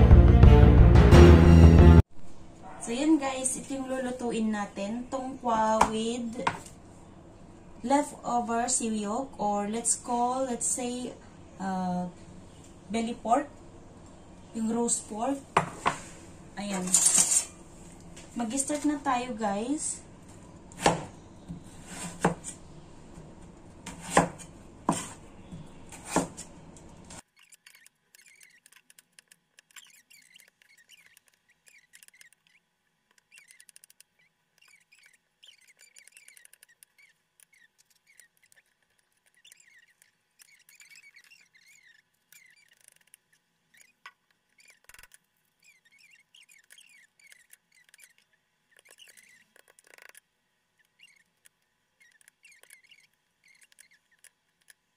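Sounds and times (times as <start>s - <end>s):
cleaver chopping on cutting board: 20.8s - 22.5s, 23.8s - 25.2s, 25.9s - 26.4s
faint high squeaks and chirps: 27.2s - 54.8s.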